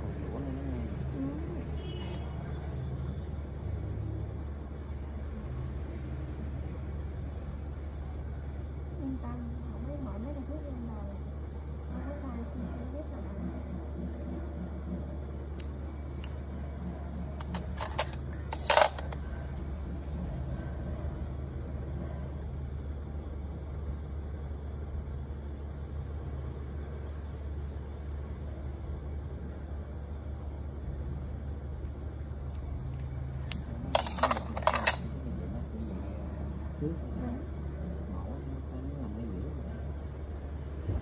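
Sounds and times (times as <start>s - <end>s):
steady low hum: 0.0s - 41.0s
metal instruments clinking on tray: 17.4s - 19.2s, 33.9s - 35.0s.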